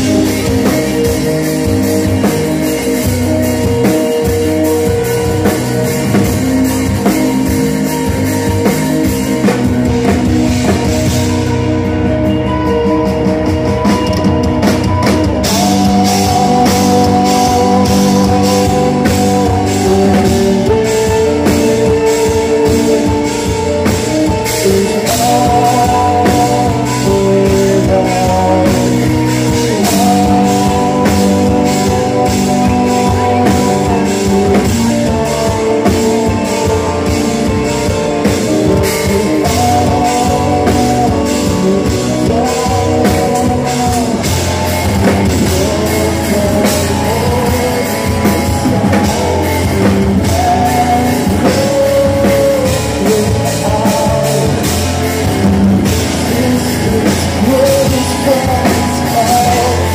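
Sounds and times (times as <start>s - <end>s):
metal band playing live: 0.0s - 59.9s
person singing long notes: 0.0s - 59.9s.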